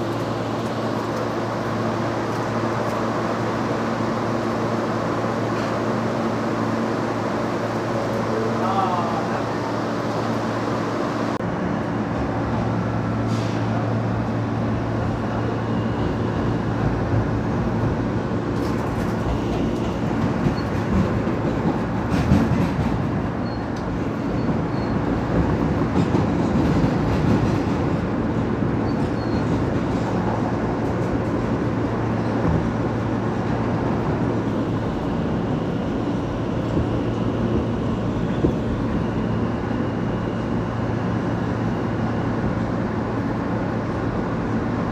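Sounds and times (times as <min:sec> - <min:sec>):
steel wheels rumbling on rail: 0:00.0 - 0:44.9.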